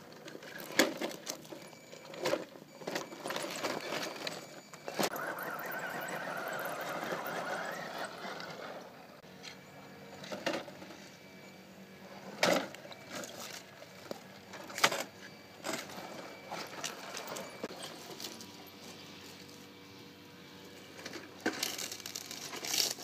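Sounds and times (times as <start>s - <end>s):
electric motor whining: 4.8s - 23.0s.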